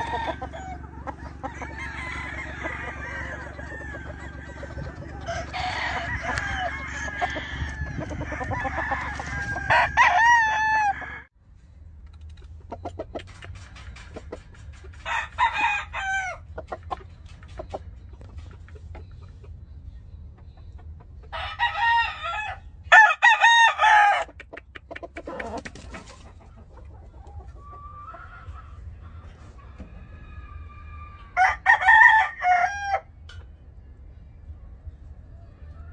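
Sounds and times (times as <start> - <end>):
roosters crowing: 0.0 - 11.3, 14.9 - 16.8, 21.3 - 24.4, 27.4 - 33.2.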